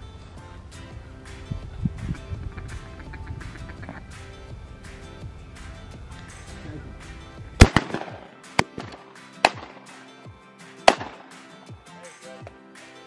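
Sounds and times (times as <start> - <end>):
background music: 0.0 - 13.0
shotgun blasts: 7.6 - 9.9, 10.9 - 11.4.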